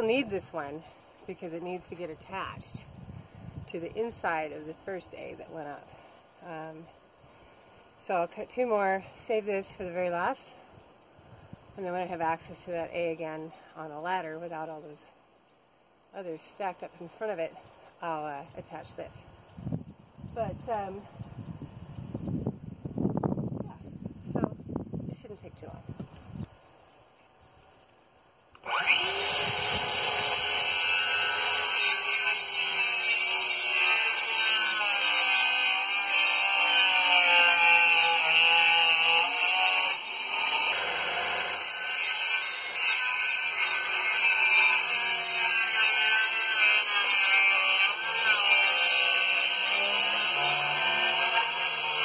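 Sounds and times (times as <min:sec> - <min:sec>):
electric saw cutting wood: 0:28.6 - 0:52.0.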